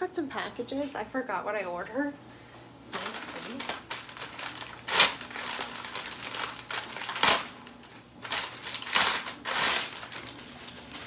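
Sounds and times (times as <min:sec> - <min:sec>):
paper bag tearing and rustling: 0:03.0 - 0:11.0.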